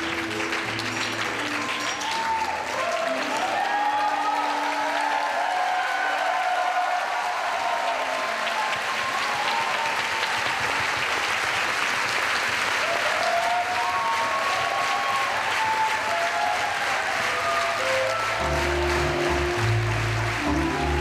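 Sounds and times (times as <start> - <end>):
audience applauding: 0.0 - 21.0
faint melodic music: 16.9 - 21.0.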